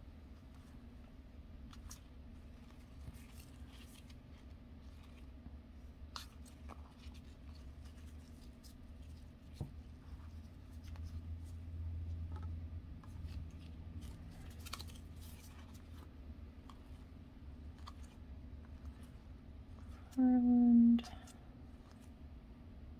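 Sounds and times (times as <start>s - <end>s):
low steady hum: 0.0s - 22.9s
trading cards sliding and clicking: 12.2s - 17.1s, 17.7s - 20.1s.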